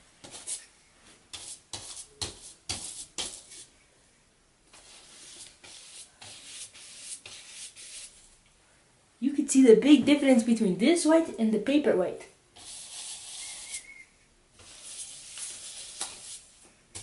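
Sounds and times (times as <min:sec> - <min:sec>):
paintbrush scrubbing paper: 0:01.3 - 0:03.7, 0:04.7 - 0:08.2, 0:12.6 - 0:14.0, 0:14.6 - 0:17.0.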